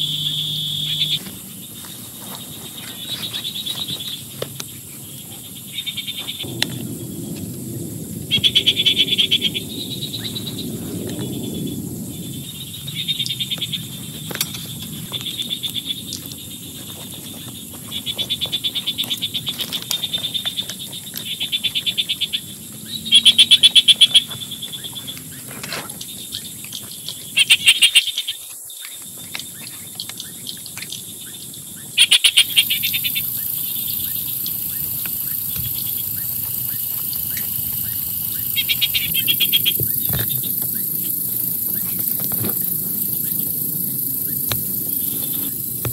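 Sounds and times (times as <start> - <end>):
frogs trilling: 0.0 - 45.9
heavy rain hiss: 6.4 - 15.6.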